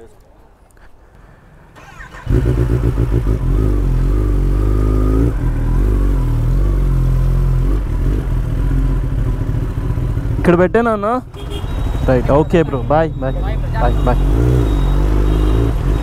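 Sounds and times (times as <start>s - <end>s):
motorcycle engine idling: 8.0s - 10.7s.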